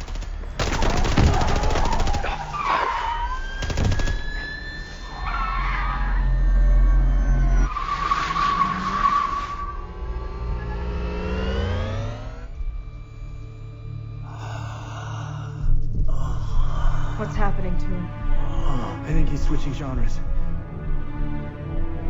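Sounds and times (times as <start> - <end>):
automatic gunfire: 0.0 - 2.4.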